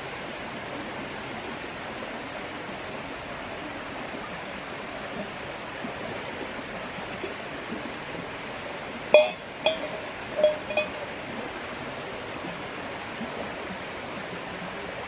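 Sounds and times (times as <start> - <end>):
creek water flowing: 5.5 - 11.2
metal mug clinking on stove: 7.0 - 7.3, 9.2 - 11.1.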